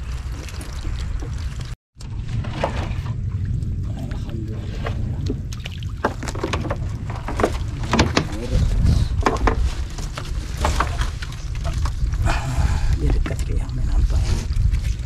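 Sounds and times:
boat engine deep rumble: 0.0s - 15.0s
crab traps clattering: 6.0s - 12.0s.

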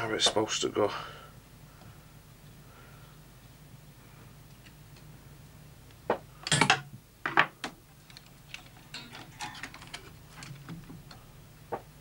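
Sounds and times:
light clicks and rattling: 8.0s - 11.2s
plastic and metal parts clacking: 8.0s - 11.2s.

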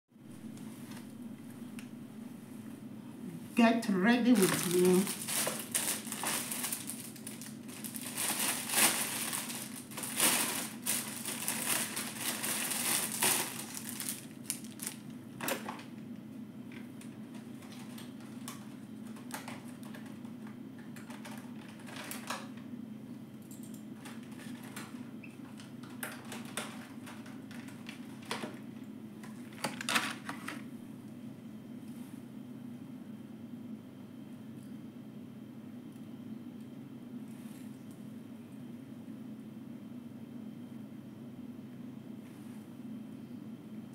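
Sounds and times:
packaging crinkling and rustling: 4.2s - 16.0s, 16.7s - 22.6s, 24.0s - 30.7s.

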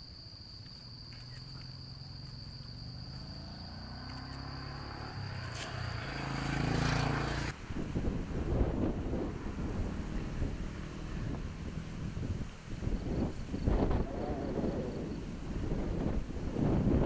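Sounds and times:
insects droning: 0.0s - 17.0s
low rumble with hiss: 7.5s - 17.0s.

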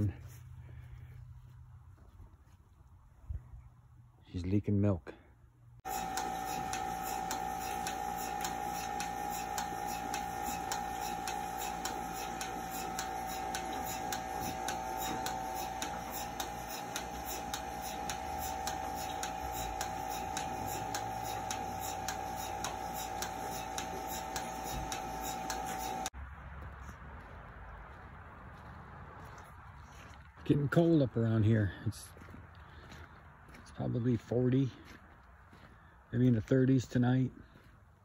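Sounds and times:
milking machine pulsator clicks: 5.9s - 26.1s
vacuum system hum: 5.9s - 26.1s.

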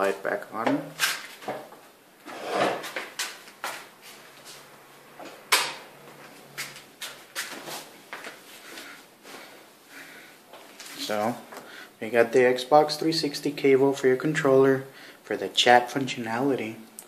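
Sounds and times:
person moving and handling things: 0.9s - 12.0s.

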